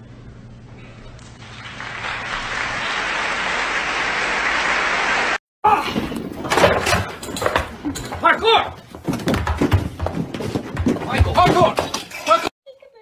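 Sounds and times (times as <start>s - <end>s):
applause: 1.4s - 5.4s.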